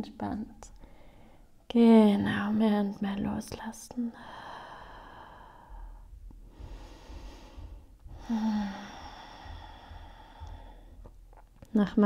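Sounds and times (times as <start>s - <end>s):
woman breathing: 0.8s - 1.7s, 4.1s - 11.4s
woman sighing: 8.1s - 10.8s.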